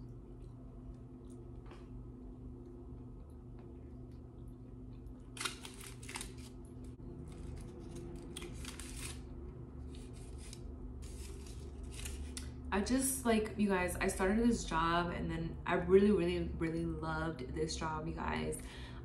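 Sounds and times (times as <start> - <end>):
steady low hum: 0.0 - 19.0
aluminium foil crinkling: 5.3 - 9.3, 9.9 - 12.6.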